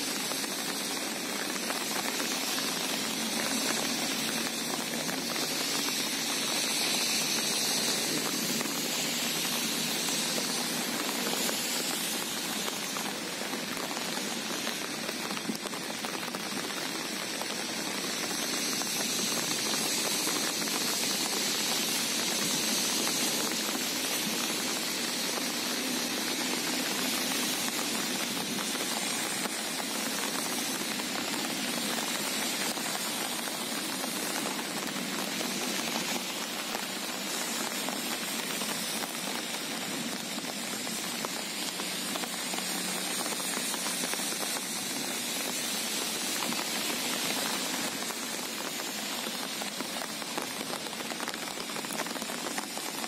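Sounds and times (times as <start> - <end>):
steady rain falling: 0.0 - 53.0.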